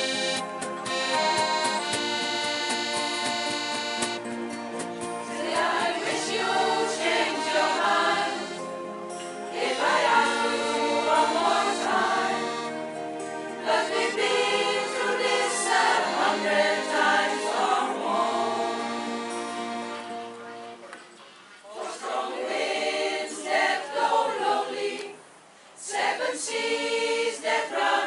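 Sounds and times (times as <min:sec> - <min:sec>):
accordion chords: 0:00.0 - 0:21.1
choir singing: 0:05.2 - 0:08.8, 0:09.4 - 0:20.1, 0:21.7 - 0:25.2, 0:25.8 - 0:28.0.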